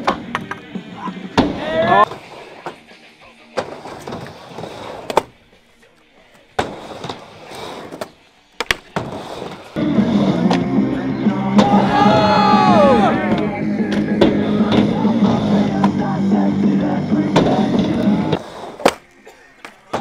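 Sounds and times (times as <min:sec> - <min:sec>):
music: 0:00.0 - 0:20.0
skateboard wheels rolling: 0:00.0 - 0:20.0
voices: 0:00.3 - 0:04.2, 0:05.2 - 0:07.2, 0:08.2 - 0:20.0
skateboard clacking on ramp: 0:06.6 - 0:09.7.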